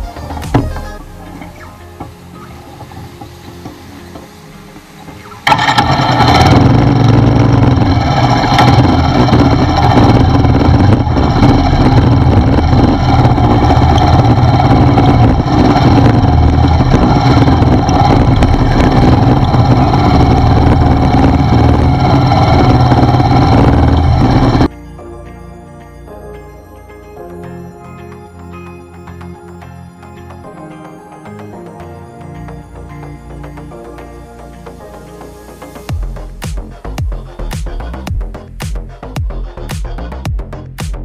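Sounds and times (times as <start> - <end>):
motorcycle engine running: 0.0 - 24.7, 35.9 - 40.5.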